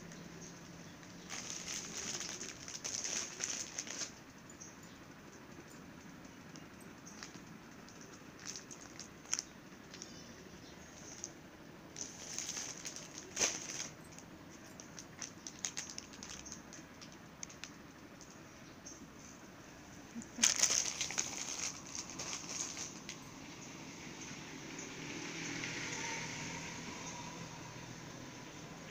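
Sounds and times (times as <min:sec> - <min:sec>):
plastic wrappers crinkling: 0:01.0 - 0:04.2, 0:07.2 - 0:10.2, 0:11.9 - 0:17.7, 0:20.2 - 0:23.2.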